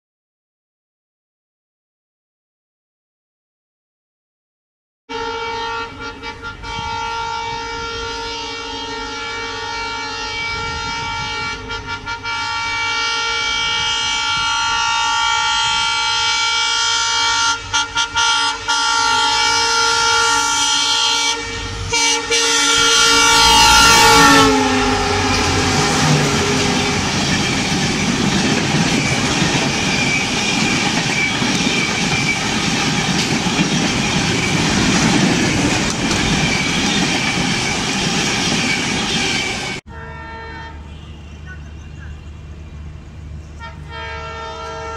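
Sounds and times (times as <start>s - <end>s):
locomotive horns: 5.1s - 33.2s, 35.8s - 42.5s, 43.6s - 44.9s
train coaches rushing and clattering: 13.3s - 39.8s.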